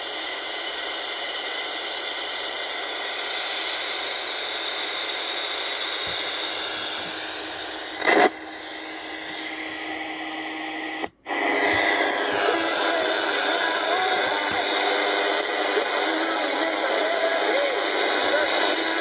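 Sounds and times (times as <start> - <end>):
radio static hiss: 0.0 - 19.0
radio station playing: 2.6 - 19.0
loud crackle: 7.9 - 8.4.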